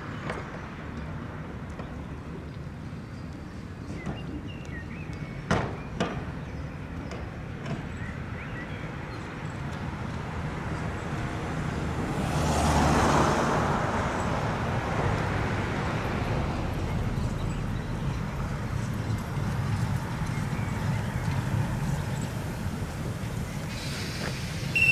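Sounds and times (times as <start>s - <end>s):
low rumble of traffic: 0.0s - 24.9s
vehicle passing close by: 10.6s - 24.9s.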